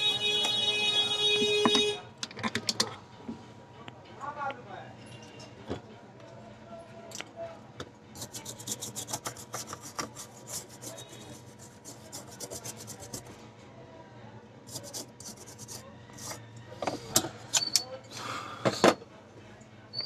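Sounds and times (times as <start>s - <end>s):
brush scrubbing circuit board: 8.2s - 13.4s, 14.7s - 16.4s.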